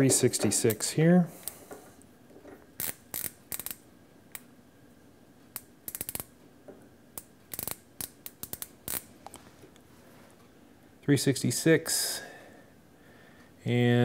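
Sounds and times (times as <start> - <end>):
micrometer ratchet clicking: 2.8 - 4.4, 5.5 - 6.3, 7.2 - 9.1.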